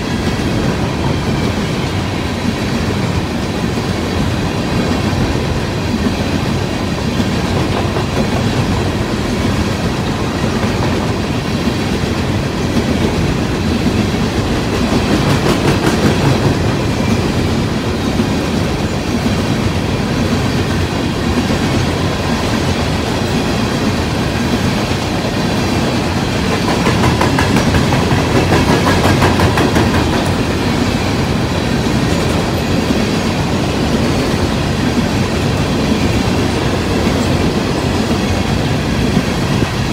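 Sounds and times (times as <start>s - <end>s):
clickety-clack over rail joints: 0.0s - 39.9s
train wheels rumbling on rails: 0.0s - 39.9s.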